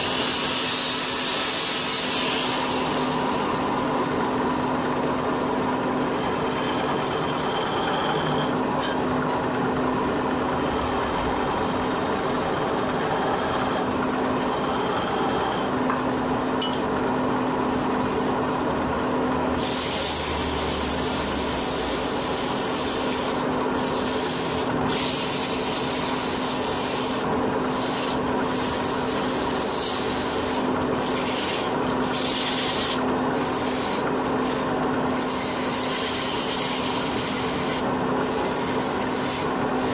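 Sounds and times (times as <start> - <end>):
chisel scraping spinning wood: 6.0 - 9.1, 10.3 - 15.8, 19.6 - 39.9
wood lathe humming: 6.0 - 15.8.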